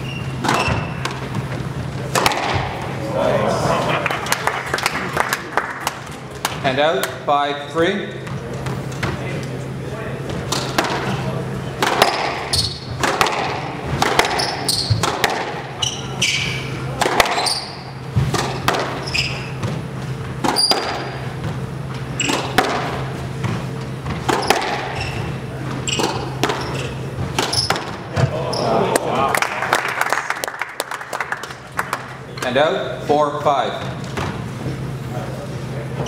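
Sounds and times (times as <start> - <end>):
shoes squeaking on court: 0.0 - 3.0, 10.2 - 28.9
squash ball struck by rackets: 2.0 - 2.9, 10.4 - 11.2, 11.8 - 15.8, 16.9 - 21.6, 22.2 - 23.2, 24.0 - 25.0, 25.9 - 28.4.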